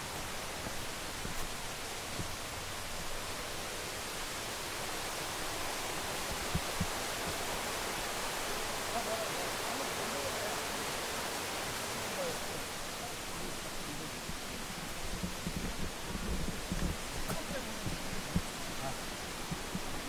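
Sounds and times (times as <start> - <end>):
steady outdoor rushing noise: 0.0 - 20.0.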